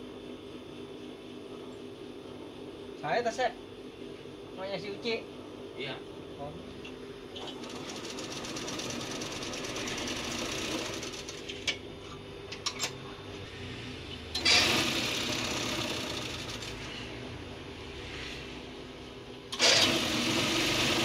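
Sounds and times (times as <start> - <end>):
industrial sewing machine running: 7.4 - 11.6, 14.3 - 17.1, 19.5 - 21.0.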